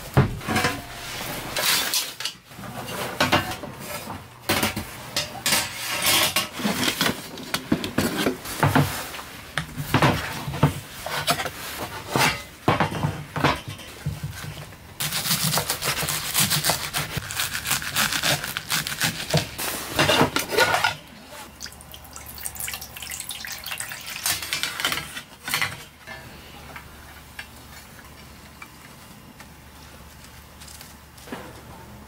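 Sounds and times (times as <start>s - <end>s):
water pouring into metal pot: 21.6s - 24.4s.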